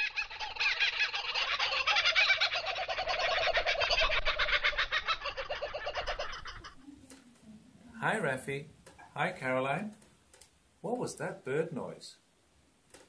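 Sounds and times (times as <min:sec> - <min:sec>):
kookaburra laughing call: 0:00.0 - 0:06.8.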